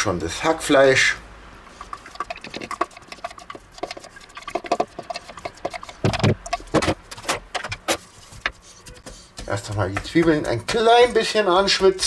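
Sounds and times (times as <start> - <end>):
spatula scraping and tapping plastic: 1.7 - 12.0.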